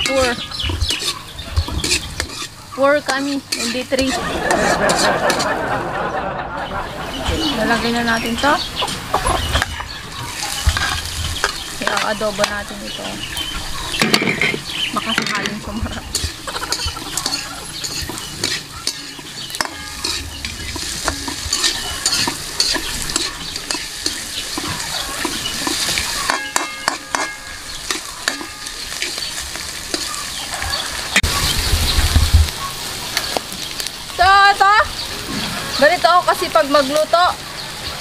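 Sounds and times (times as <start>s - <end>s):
utensil scraping a pan: 0.0s - 5.6s, 7.6s - 31.4s
food sizzling in a pan: 0.0s - 5.8s, 7.0s - 38.0s.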